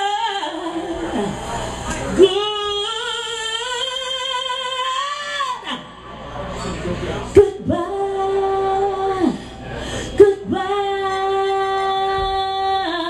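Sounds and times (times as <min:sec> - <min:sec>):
woman singing through pa: 0:00.0 - 0:01.4, 0:02.2 - 0:05.9, 0:07.4 - 0:09.5, 0:10.2 - 0:13.0.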